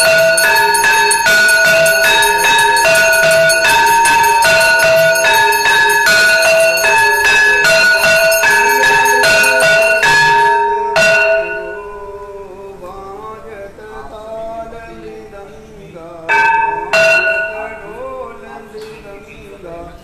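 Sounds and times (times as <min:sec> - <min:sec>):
temple bells ringing: 0:00.0 - 0:12.6, 0:16.3 - 0:19.0.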